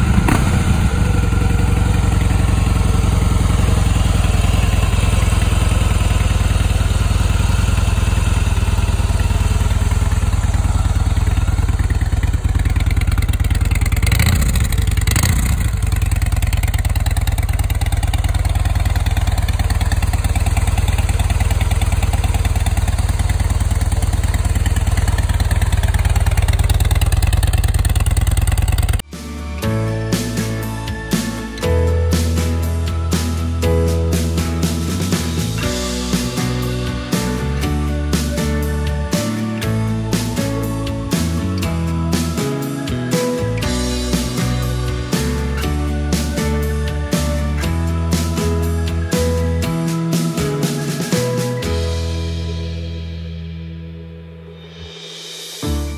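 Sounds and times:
motorcycle engine idling: 0.0s - 29.1s, 34.2s - 49.7s.

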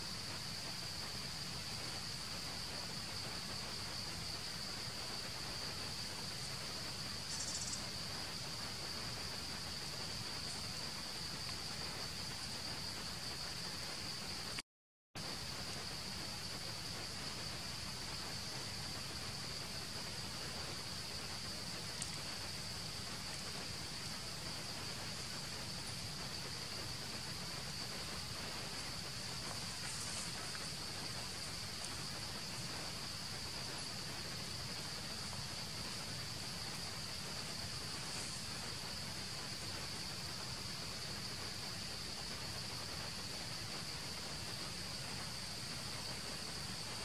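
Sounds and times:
background hiss: 0.0s - 14.6s, 15.2s - 47.0s
insects droning: 0.0s - 14.6s, 15.2s - 47.0s
faint clicks: 21.9s - 22.4s.

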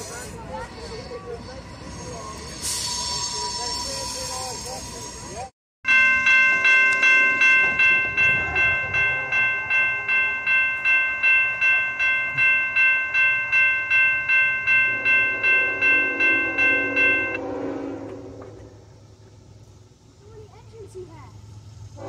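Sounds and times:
railroad crossing bell ringing: 1.8s - 17.7s.

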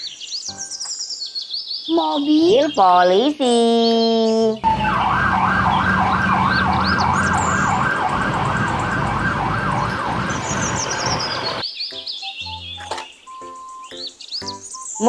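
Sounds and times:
low traffic rumble: 4.6s - 11.6s
police siren yelping: 4.6s - 11.6s.

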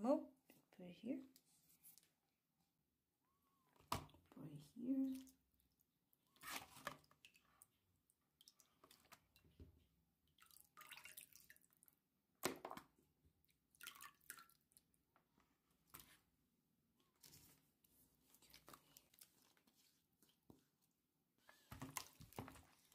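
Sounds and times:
soft wet squishes: 3.4s - 22.9s
faint water drips: 4.3s - 9.6s, 10.3s - 12.0s, 13.7s - 14.9s.

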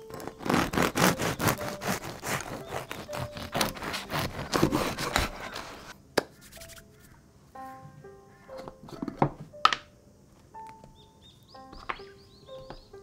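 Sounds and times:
bread knife sawing crusty bread: 0.1s - 6.0s.

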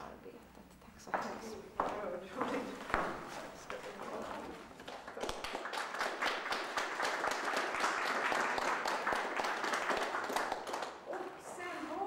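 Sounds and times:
audience applauding: 4.8s - 11.1s.

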